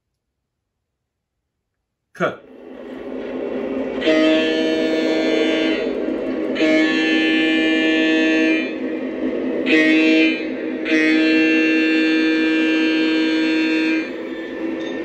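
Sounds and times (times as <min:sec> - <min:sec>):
model train air horn: 0:04.0 - 0:08.8, 0:09.6 - 0:14.9.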